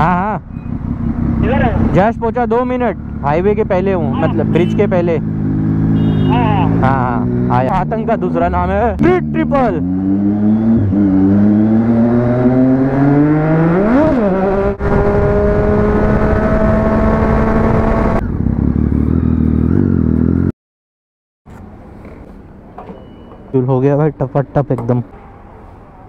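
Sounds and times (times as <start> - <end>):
motorcycle engine accelerating: 0.0 - 20.5.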